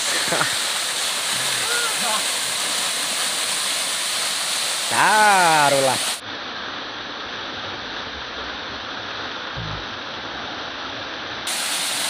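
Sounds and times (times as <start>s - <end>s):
waterfall pouring onto rocks: 0.0s - 6.2s, 11.5s - 12.0s
brief low thump: 9.6s - 9.8s.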